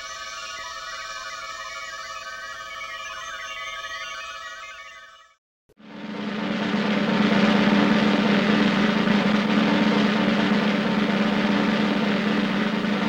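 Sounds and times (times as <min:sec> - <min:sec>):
low hum: 0:05.8 - 0:13.0.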